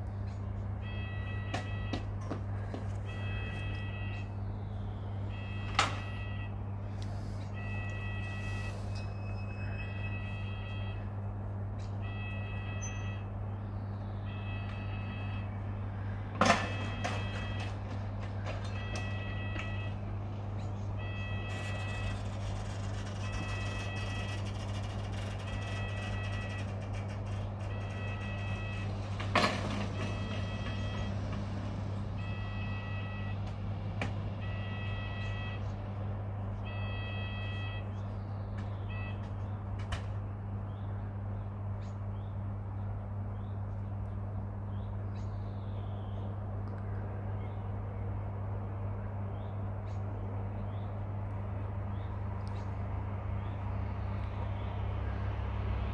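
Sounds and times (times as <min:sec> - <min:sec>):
level crossing alarm beeping: 0:00.8 - 0:02.2, 0:03.0 - 0:04.4, 0:05.2 - 0:06.7, 0:07.4 - 0:11.4, 0:12.0 - 0:13.4, 0:14.2 - 0:15.7, 0:16.5 - 0:17.8, 0:18.6 - 0:20.2, 0:20.8 - 0:31.4, 0:32.2 - 0:33.5, 0:34.4 - 0:35.7, 0:36.6 - 0:38.0, 0:38.8 - 0:39.4
crossing gates banging shut: 0:05.5 - 0:06.5, 0:16.3 - 0:19.9, 0:21.3 - 0:32.8.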